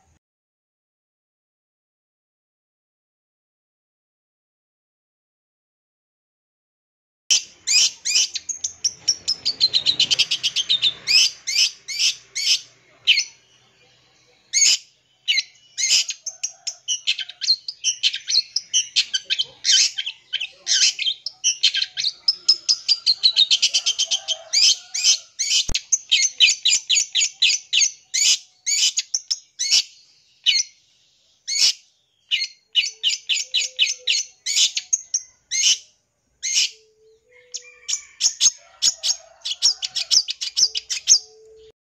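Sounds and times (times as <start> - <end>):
bird singing chattering trills: 7.3 - 30.8, 31.5 - 38.6, 39.6 - 41.7.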